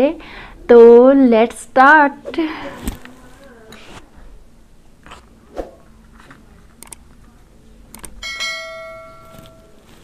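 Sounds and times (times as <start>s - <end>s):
metallic bell ring: 8.2s - 9.8s.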